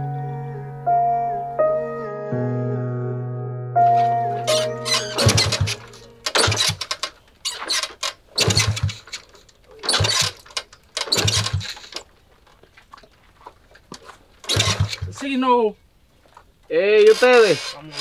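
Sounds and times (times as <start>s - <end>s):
motorcycle kick-start attempts: 4.5s - 12.1s, 14.4s - 15.3s, 17.0s - 18.0s
short engine bursts: 5.1s - 7.1s, 7.8s - 9.3s, 9.9s - 12.0s, 14.5s - 15.2s.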